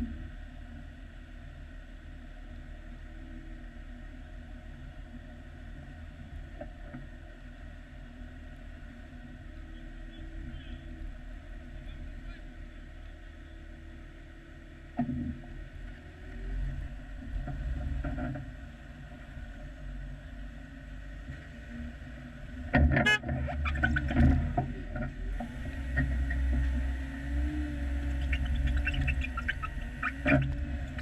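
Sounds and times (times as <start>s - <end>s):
engine running at low revs: 0.0s - 31.0s
clunks and rattles over rocks: 22.7s - 26.9s.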